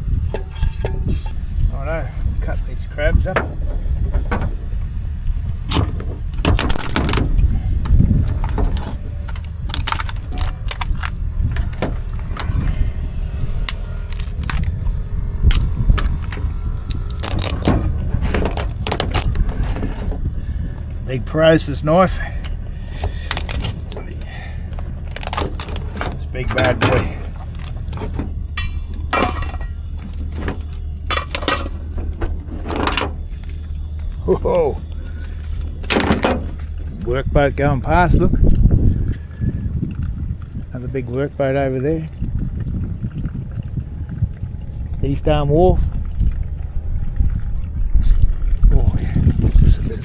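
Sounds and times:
steady low hum: 0.0 - 50.0
steady low rumble: 0.0 - 50.0
crab shells cracking: 8.4 - 11.8, 13.4 - 19.4, 22.4 - 31.8.

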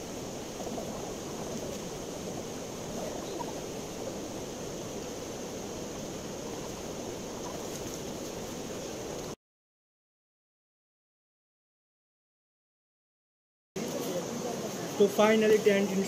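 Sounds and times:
river water rushing: 0.0 - 9.4.

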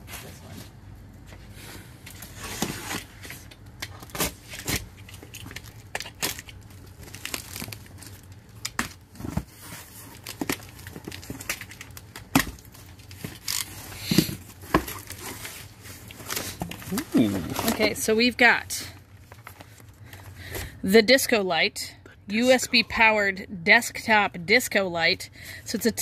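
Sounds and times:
packing tape ripping: 2.2 - 9.0, 9.6 - 17.8.

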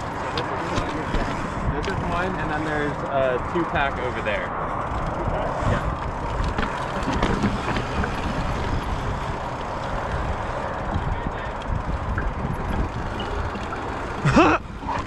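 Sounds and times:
bike clicks and rattles: 0.0 - 15.0
bike tyres rumbling on dirt: 0.0 - 15.0.

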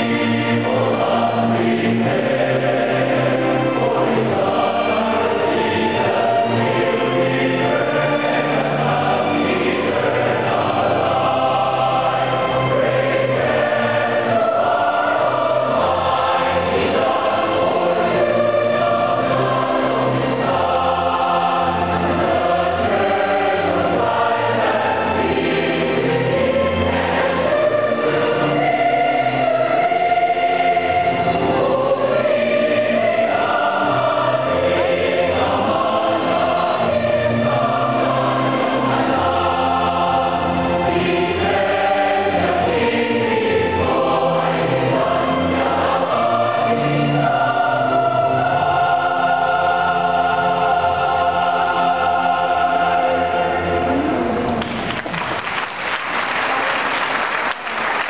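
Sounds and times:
massed choir with orchestra: 0.0 - 58.0
audience applause: 54.5 - 58.0.

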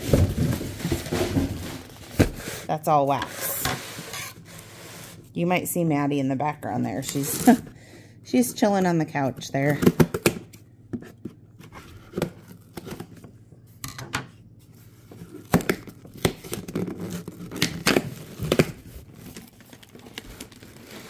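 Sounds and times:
plastic packaging rustling: 0.0 - 2.7, 15.0 - 21.0.

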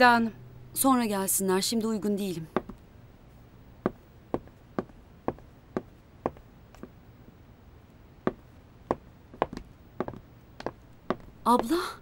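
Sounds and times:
footsteps on hard floor: 8.3 - 11.7.

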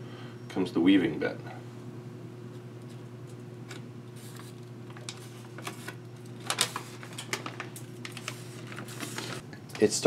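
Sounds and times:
steady low hum: 0.0 - 10.0
foil crinkling: 4.2 - 9.4.

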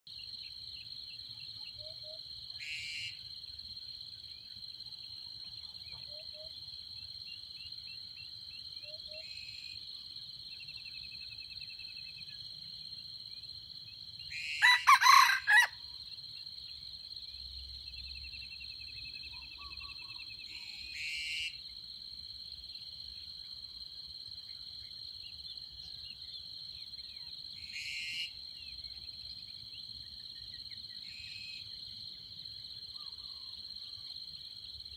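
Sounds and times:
rooster crowing: 14.4 - 15.8.

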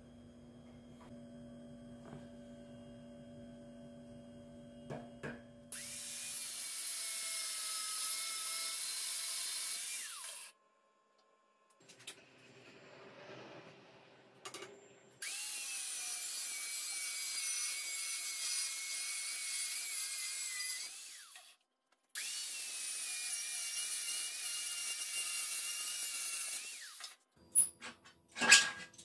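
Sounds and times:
angle grinder cutting steel: 5.7 - 10.5, 15.2 - 21.6, 22.2 - 27.2.

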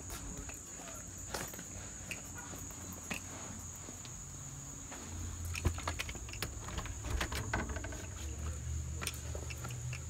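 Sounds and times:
footsteps on concrete: 0.0 - 7.0, 7.9 - 10.0
handling clicks and knocks: 5.5 - 10.0.

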